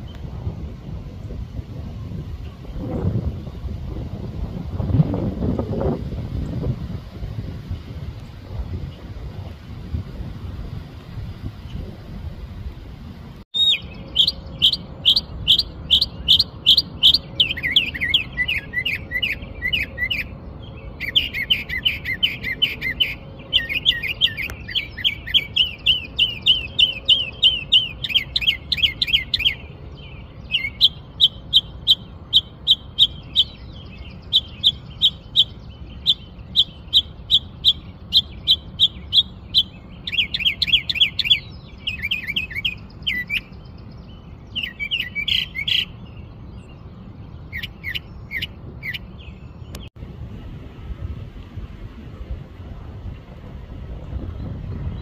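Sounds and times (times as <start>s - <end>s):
mockingbird singing: 13.6s - 49.9s.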